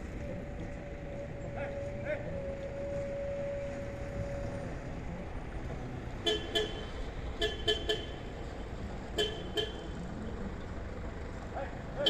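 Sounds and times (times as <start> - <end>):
vehicle horn toots: 6.2 - 8.2, 9.2 - 9.9.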